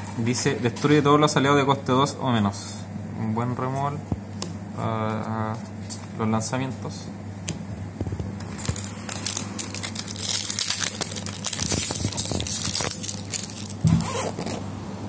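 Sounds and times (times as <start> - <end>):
wrapper tearing and crinkling: 8.4 - 14.6.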